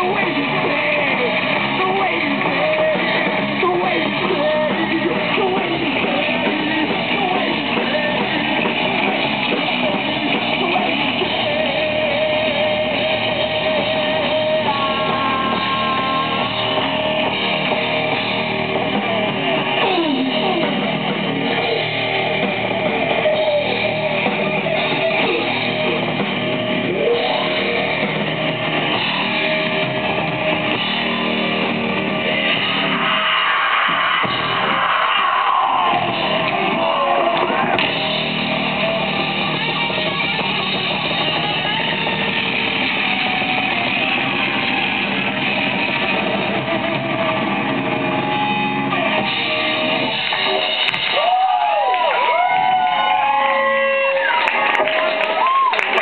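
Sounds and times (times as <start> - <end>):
person singing: 0.0 - 26.2, 26.8 - 29.6, 35.6 - 42.4
muffled live metal band: 0.0 - 56.0.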